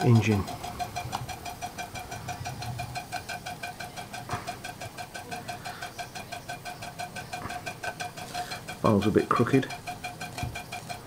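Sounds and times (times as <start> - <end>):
toy steam engine ticking: 0.0 - 11.0.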